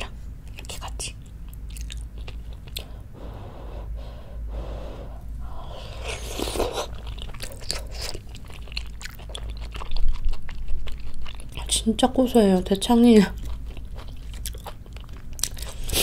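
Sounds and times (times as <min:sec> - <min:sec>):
wet chewing clicks: 0:00.5 - 0:03.0, 0:06.2 - 0:16.0
breathy sounds: 0:02.8 - 0:06.8.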